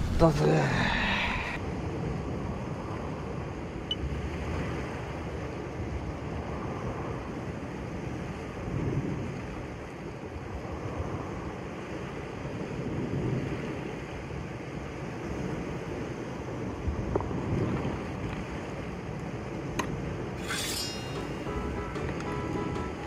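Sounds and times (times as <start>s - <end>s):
wind on microphone: 1.3s - 22.3s
background music: 20.4s - 23.0s.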